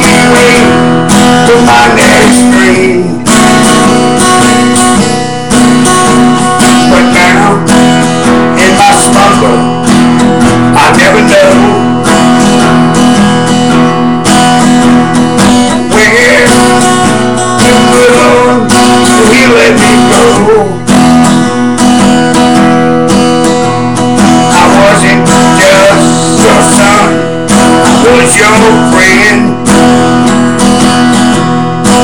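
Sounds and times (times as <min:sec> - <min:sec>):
acoustic guitar strumming: 0:00.0 - 0:32.0.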